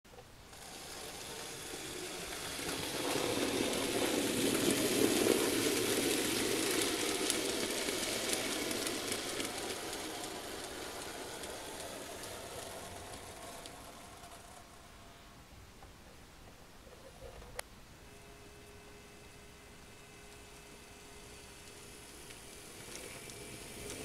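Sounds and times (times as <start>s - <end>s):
wheels clicking on rails: 0.1s - 15.2s, 20.2s - 24.0s
model train rumbling past: 0.5s - 15.3s, 18.2s - 24.0s.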